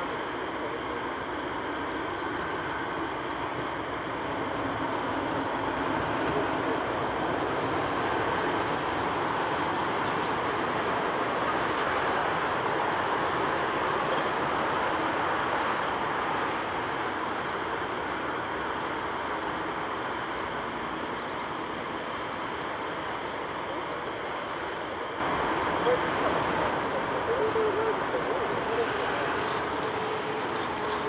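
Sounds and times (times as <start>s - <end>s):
jet engines at taxi power: 0.0s - 31.0s.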